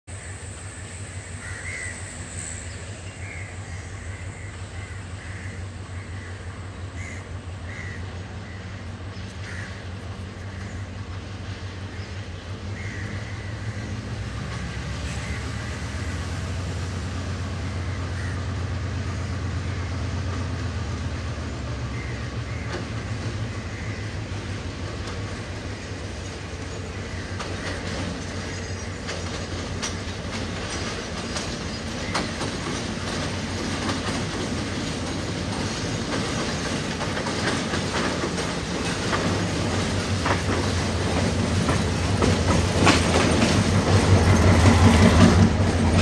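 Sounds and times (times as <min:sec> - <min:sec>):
diesel locomotive engine drone: 0:00.0 - 0:46.0
crows cawing: 0:01.4 - 0:02.0, 0:03.2 - 0:08.8, 0:09.4 - 0:09.9, 0:12.8 - 0:13.9, 0:17.8 - 0:18.7, 0:22.0 - 0:24.5.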